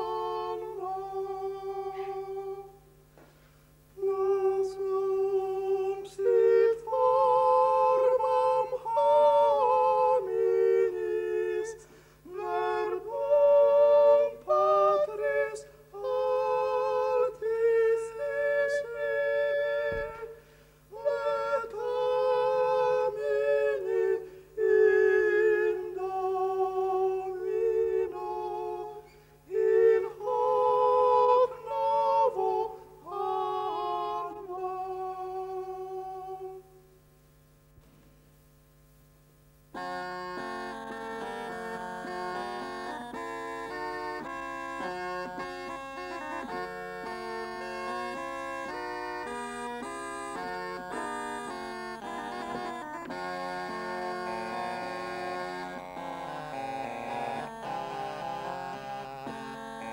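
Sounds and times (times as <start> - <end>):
two men singing in harmony: 0.0 - 2.8, 4.0 - 36.7
faint low hum: 0.0 - 59.9.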